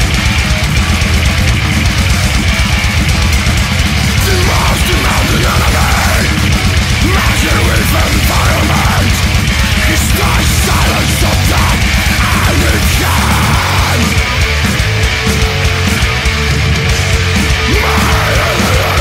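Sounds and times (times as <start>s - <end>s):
distorted guitars and bass: 0.0s - 19.0s
fast dense drumming: 0.0s - 19.0s.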